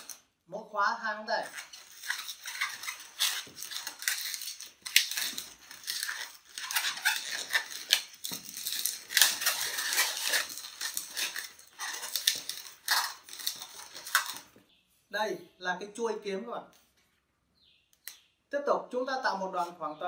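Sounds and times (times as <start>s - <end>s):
rubber balloon squeaking: 1.2s - 14.7s.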